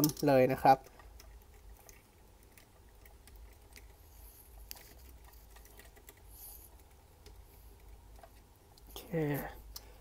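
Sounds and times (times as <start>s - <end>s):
plastic toy parts clicking: 0.0s - 4.0s.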